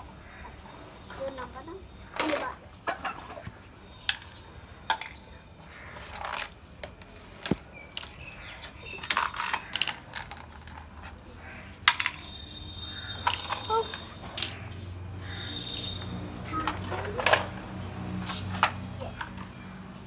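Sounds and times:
small hard objects clattering: 5.8 - 19.8.

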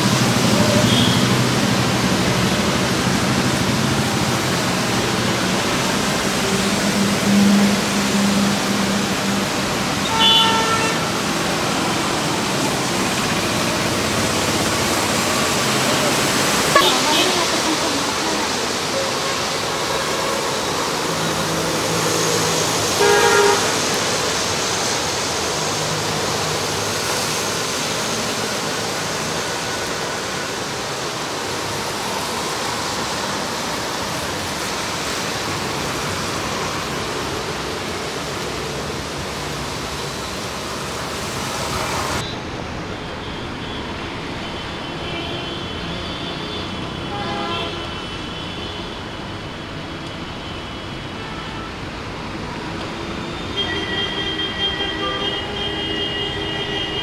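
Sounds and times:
heavy rain hissing: 0.0 - 57.0
passing traffic: 0.0 - 57.0
car horn toot: 0.8 - 1.4, 10.0 - 11.0, 16.7 - 17.4, 23.0 - 23.7, 45.0 - 48.8, 53.5 - 57.0.

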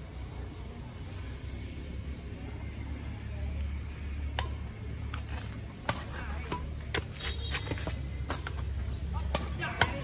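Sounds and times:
rackets striking shuttlecock: 4.2 - 10.0.

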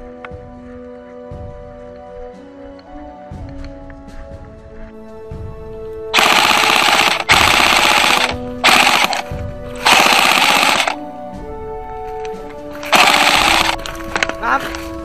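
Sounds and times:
background music: 0.0 - 15.0
airsoft rifle rapid shots: 6.2 - 11.0, 12.8 - 13.8.

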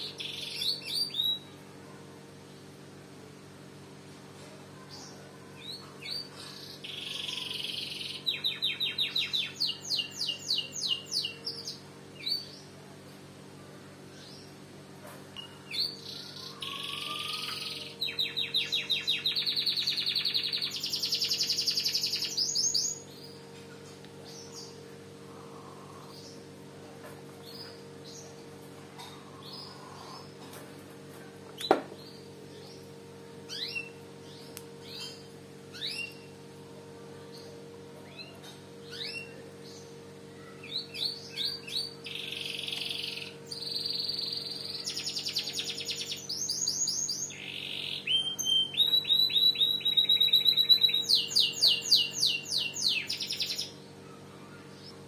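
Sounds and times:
canary singing trills: 0.0 - 1.5, 4.9 - 12.7, 15.4 - 23.4, 38.0 - 55.0
steady low hum: 0.0 - 55.0.

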